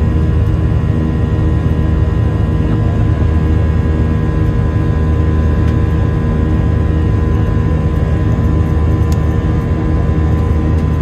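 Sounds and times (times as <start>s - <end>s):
jet engines rumbling in cabin: 0.0s - 11.0s.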